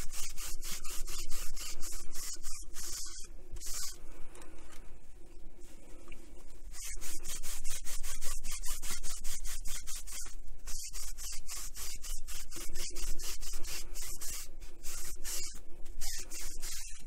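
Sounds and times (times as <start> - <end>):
wipe scrubbing plastic case: 6.4 - 17.0.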